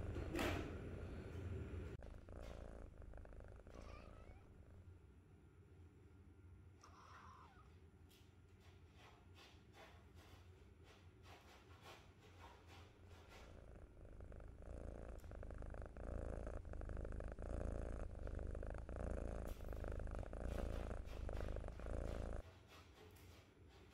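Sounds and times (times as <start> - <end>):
kitten purring: 0.0 - 0.7, 1.7 - 4.9, 12.7 - 22.4.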